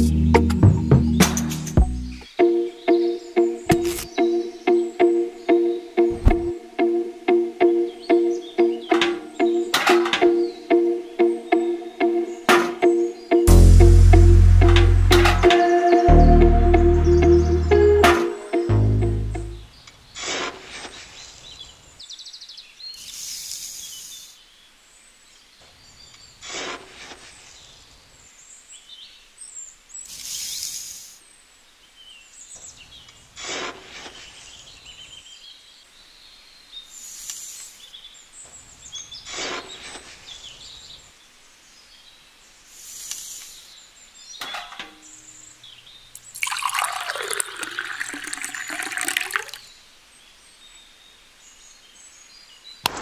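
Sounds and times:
birds chirping: 0.0s - 20.2s, 34.3s - 53.0s
water pouring into drum: 46.2s - 49.6s.

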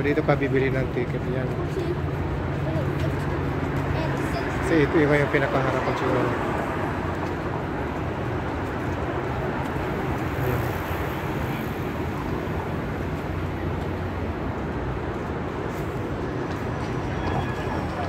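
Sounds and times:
city street traffic: 0.0s - 18.0s.

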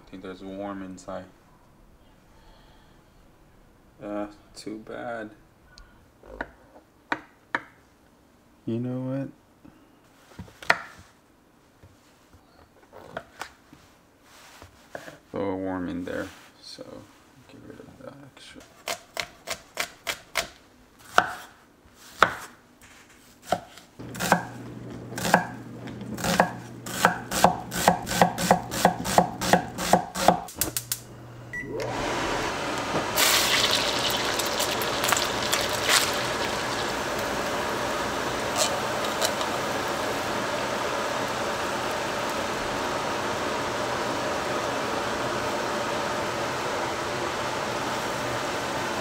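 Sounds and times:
cleaver chopping on wooden board: 26.2s - 30.5s
vent fan whoosh: 36.8s - 49.0s.

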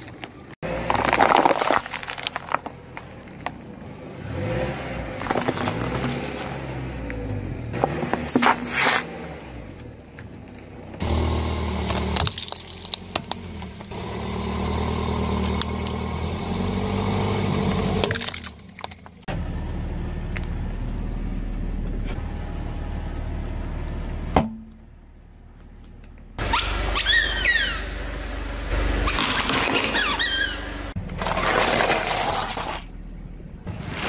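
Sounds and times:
tyre crushing objects with cracks: 0.0s - 3.5s, 5.1s - 6.6s, 11.2s - 14.0s, 30.9s - 33.0s, 33.6s - 34.0s
car engine running: 0.2s - 33.9s.

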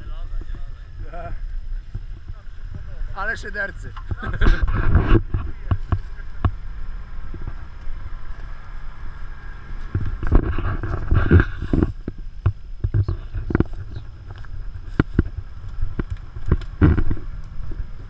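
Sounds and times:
vehicle engine running: 0.0s - 18.0s
twigs crackling and snapping: 13.5s - 17.6s.

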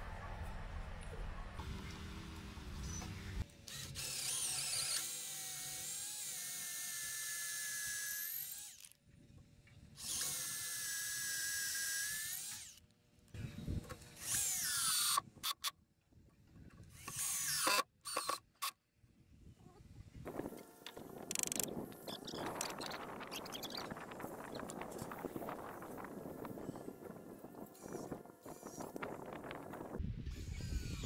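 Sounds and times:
cordless drill boring into wood: 3.7s - 9.0s, 10.0s - 12.8s, 14.2s - 15.6s, 17.0s - 18.4s, 27.7s - 29.0s, 30.3s - 31.0s.

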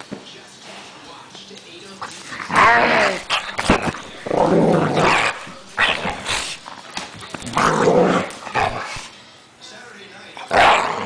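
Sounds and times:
dog play-growling: 2.0s - 9.1s, 10.4s - 11.0s.

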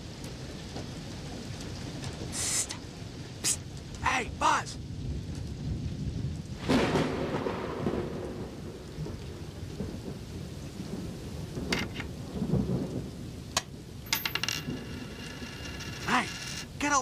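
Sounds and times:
steady rain: 0.0s - 17.0s
thunderclap rumbling: 4.8s - 16.6s.

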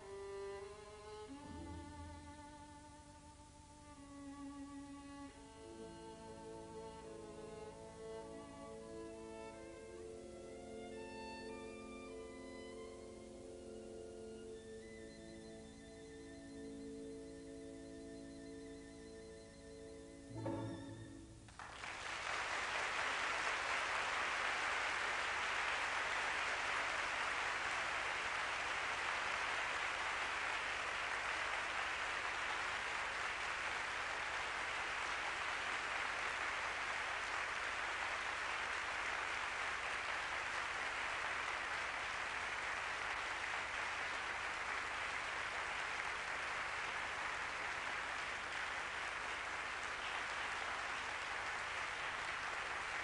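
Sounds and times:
audience applauding: 21.5s - 53.0s.

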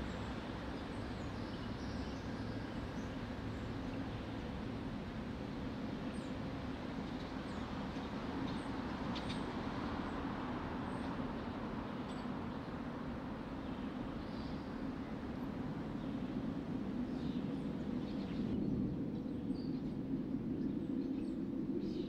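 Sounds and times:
low city rumble: 0.0s - 22.0s.

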